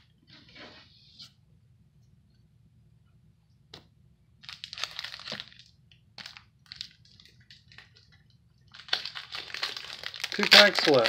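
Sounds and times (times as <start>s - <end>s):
foil wrapper crinkling: 4.4s - 11.0s.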